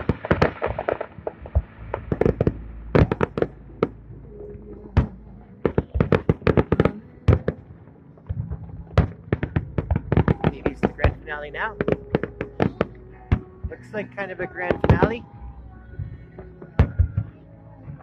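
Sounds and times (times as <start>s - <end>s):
fireworks bursting with sharp bangs: 0.0s - 15.3s, 16.3s - 18.0s.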